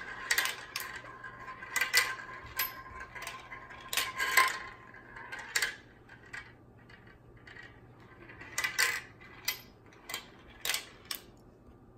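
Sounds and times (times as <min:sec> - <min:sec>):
marbles clinking into metal bowl: 0:00.0 - 0:06.5
marbles clicking on plastic track: 0:00.0 - 0:11.2.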